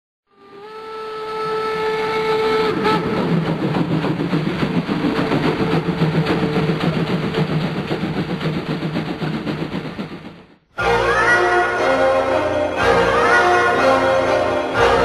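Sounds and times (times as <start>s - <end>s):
steam locomotive whistle: 0.3s - 3.6s, 10.8s - 15.0s
locomotive exhaust beat: 0.3s - 12.2s.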